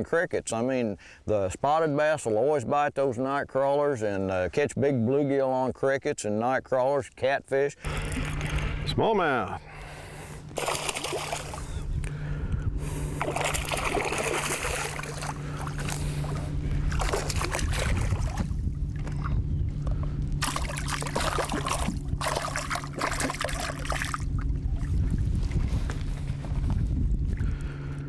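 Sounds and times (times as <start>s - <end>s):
steady low hum: 7.7s - 28.0s
water splashing around boat: 7.9s - 27.8s.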